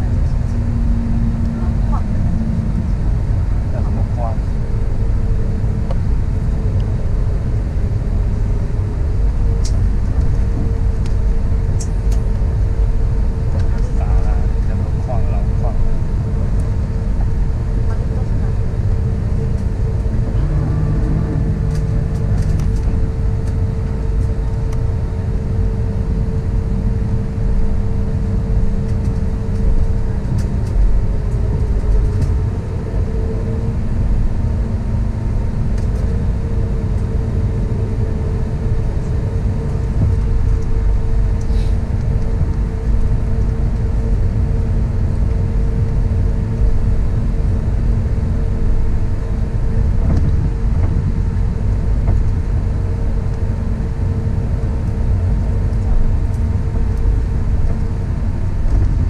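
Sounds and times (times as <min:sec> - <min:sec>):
aircraft cabin engine rumble: 0:00.0 - 0:59.0.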